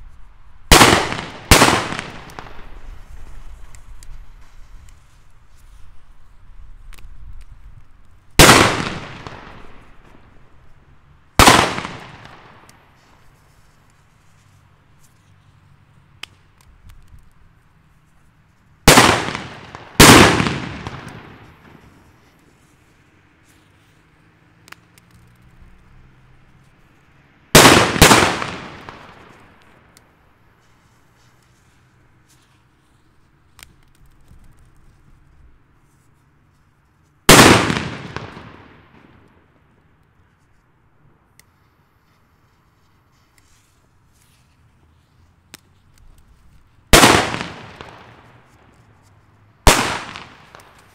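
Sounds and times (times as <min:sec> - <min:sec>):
firecracker bangs echoing: 0:00.7 - 0:03.1, 0:08.4 - 0:10.3, 0:11.4 - 0:12.8, 0:18.9 - 0:22.2, 0:27.5 - 0:29.6, 0:37.3 - 0:39.3, 0:46.9 - 0:48.4, 0:49.7 - 0:50.9
small crack: 0:32.3 - 0:36.3, 0:41.3 - 0:46.7.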